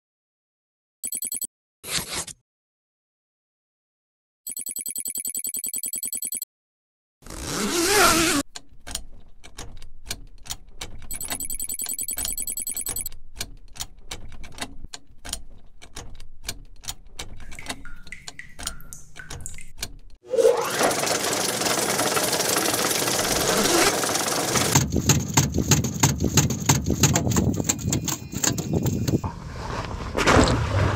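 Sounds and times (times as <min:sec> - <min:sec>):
gears clicking and ticking: 0:08.5 - 0:29.2.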